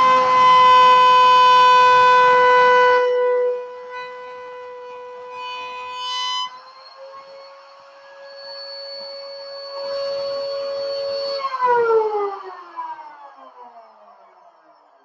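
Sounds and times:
router cutting wood: 0:00.0 - 0:11.8
router high whine: 0:00.0 - 0:13.7.

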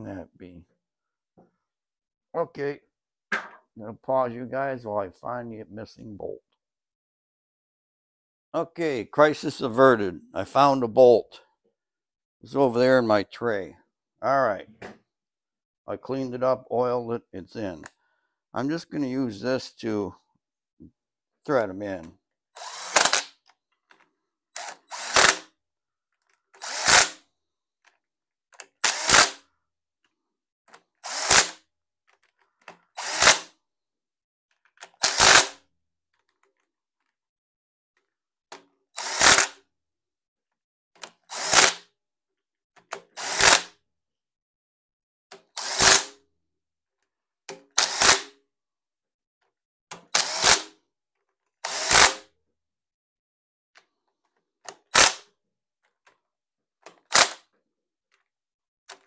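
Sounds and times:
cordless power driver bursts: 0:24.6 - 0:25.4, 0:26.6 - 0:27.2, 0:28.8 - 0:29.4, 0:31.0 - 0:31.5, 0:33.0 - 0:33.5, 0:35.0 - 0:35.5, 0:39.0 - 0:39.5, 0:41.3 - 0:41.8, 0:43.2 - 0:43.6, 0:45.6 - 0:46.1, 0:47.8 - 0:48.2, 0:50.1 - 0:50.6, 0:51.6 - 0:52.2, 0:55.0 - 0:55.2.

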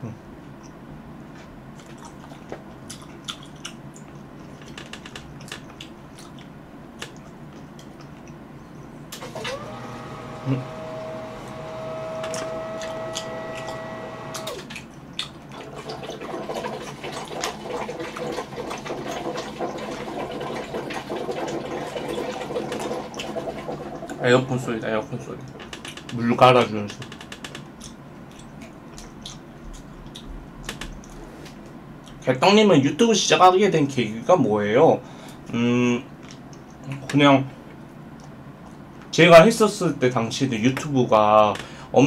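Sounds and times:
air conditioner hum rising: 0:00.0 - 0:42.0
cherries being chewed: 0:01.8 - 0:08.4
gurgling crackling water: 0:14.8 - 0:24.7.

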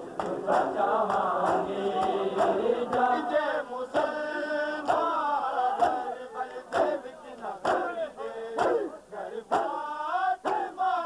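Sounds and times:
men chanting together: 0:00.0 - 0:11.0
hands slapping on chests: 0:00.2 - 0:03.1, 0:04.8 - 0:05.2, 0:05.8 - 0:07.0, 0:07.6 - 0:08.0, 0:09.5 - 0:09.8, 0:10.4 - 0:10.7.

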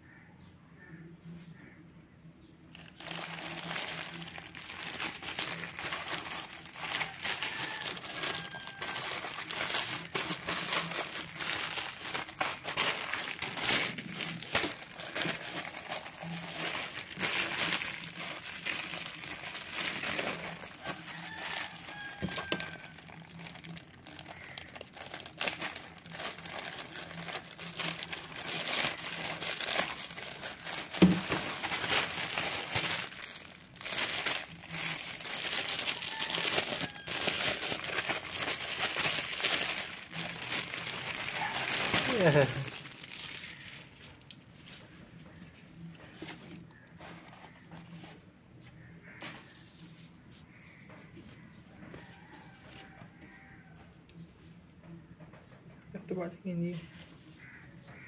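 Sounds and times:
plastic bag tearing: 0:02.7 - 0:44.5
plastic bag crinkling: 0:02.7 - 0:48.1.

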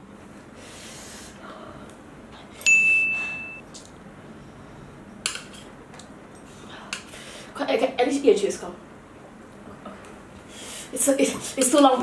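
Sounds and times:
metallic ding: 0:02.6 - 0:03.6.

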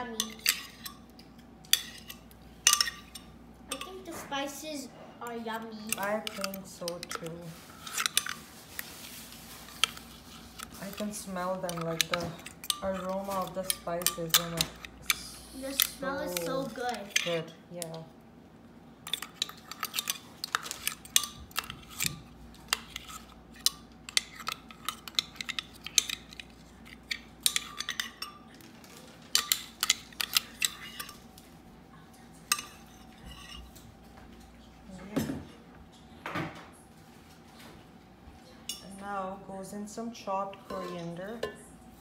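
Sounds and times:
utensils and dishes clinking: 0:00.0 - 0:04.4, 0:05.2 - 0:08.9, 0:09.5 - 0:17.5, 0:19.0 - 0:31.4, 0:32.4 - 0:36.7.

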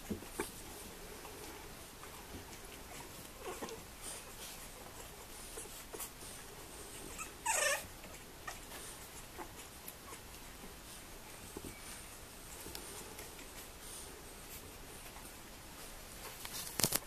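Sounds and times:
puppies scuffling: 0:00.0 - 0:17.0
puppy yelping: 0:07.1 - 0:08.7
puppies squeaking: 0:07.1 - 0:10.3.

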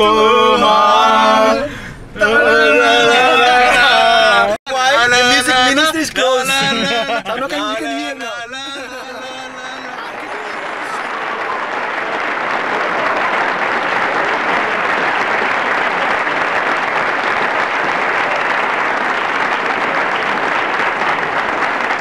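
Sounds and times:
many hands clapping: 0:09.0 - 0:22.0.

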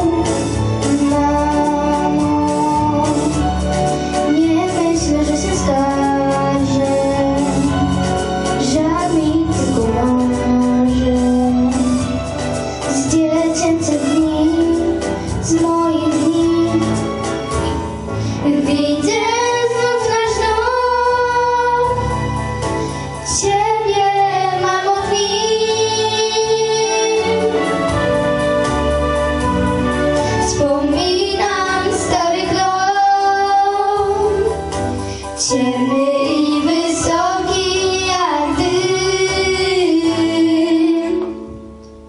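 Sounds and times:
girls singing into microphones: 0:00.0 - 0:12.0, 0:18.2 - 0:22.3, 0:23.2 - 0:28.0, 0:30.1 - 0:41.6
musical accompaniment: 0:00.0 - 0:42.0.

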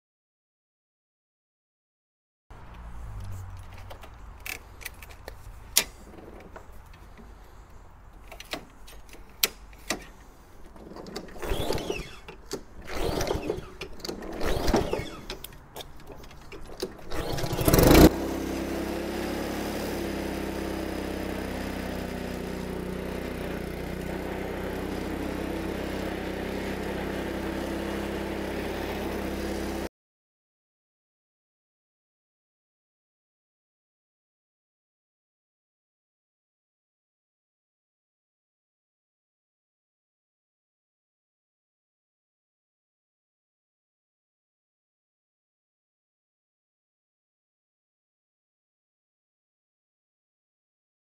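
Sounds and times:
lawn mower engine running: 0:03.0 - 0:29.9
recoil starter pulls: 0:08.1 - 0:29.9.

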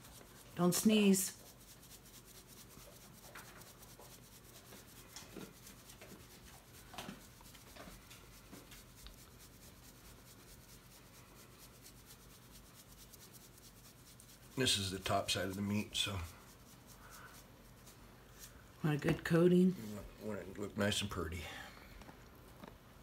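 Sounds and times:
rub shaken from a shaker: 0:00.0 - 0:18.8.

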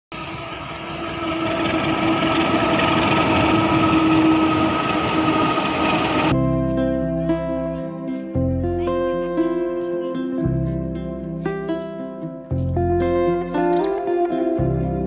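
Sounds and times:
steady whine: 0:00.1 - 0:06.4
train rumbling over bridge: 0:00.1 - 0:06.4
music: 0:06.3 - 0:15.0.

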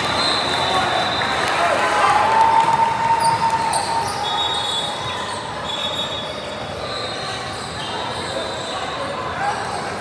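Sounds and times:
voices echoing in a hall: 0:00.0 - 0:10.0
high shoe squeaks: 0:03.2 - 0:10.0.

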